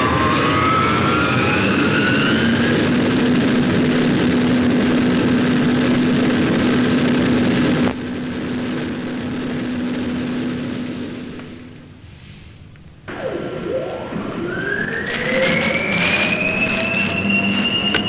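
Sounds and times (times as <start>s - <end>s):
machinery droning: 12.9s - 18.0s.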